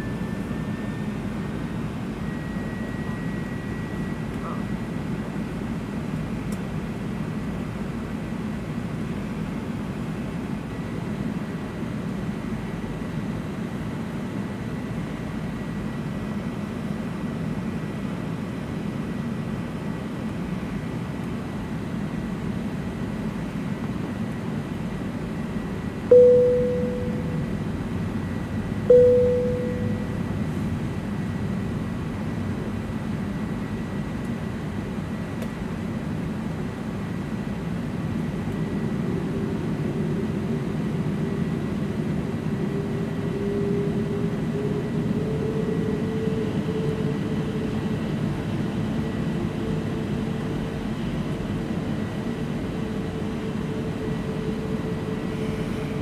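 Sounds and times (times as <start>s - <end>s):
airliner cabin noise: 16.2s - 56.0s.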